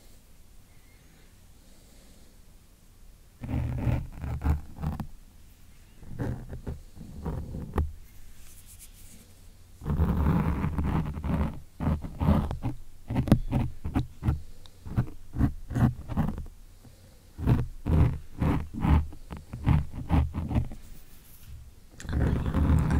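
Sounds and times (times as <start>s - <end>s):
fingers scratching microphone foam: 3.4s - 5.1s, 6.0s - 9.2s, 9.8s - 16.5s, 17.4s - 22.9s.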